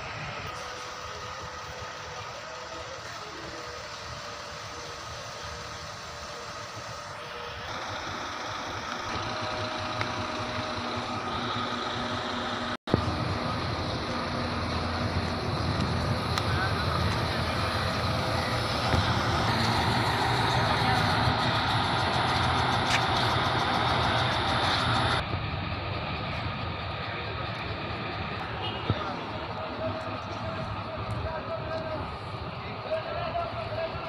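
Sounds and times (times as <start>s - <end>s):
diesel engine running: 0.0s - 34.0s.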